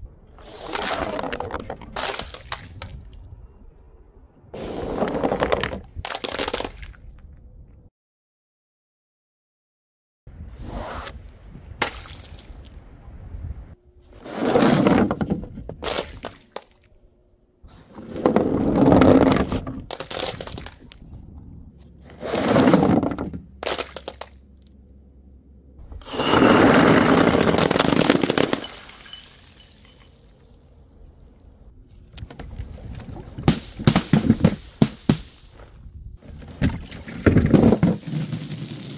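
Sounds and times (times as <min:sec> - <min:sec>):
glass bottles shattering: 0:26.0 - 0:30.3.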